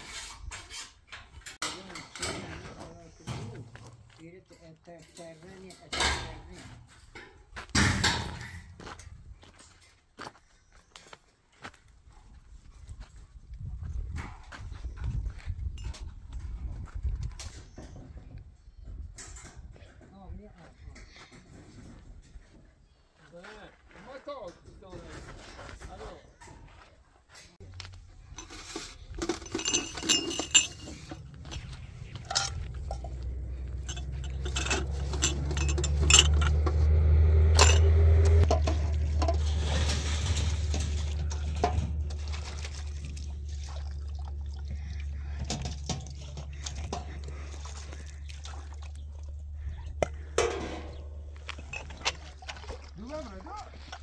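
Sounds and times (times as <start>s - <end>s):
low steady rumble: 27.8s - 52.9s
metal roofing sheets clinking: 28.2s - 42.3s.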